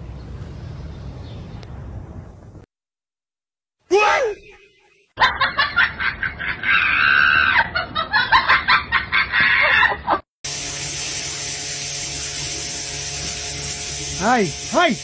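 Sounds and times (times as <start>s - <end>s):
water spraying hiss: 10.5s - 15.0s.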